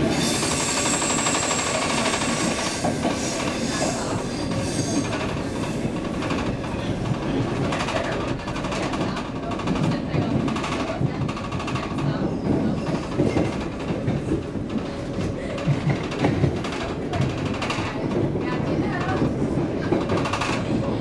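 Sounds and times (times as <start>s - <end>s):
train wheels rumbling on rail: 0.0s - 21.0s
clatter over rail joints: 5.1s - 21.0s.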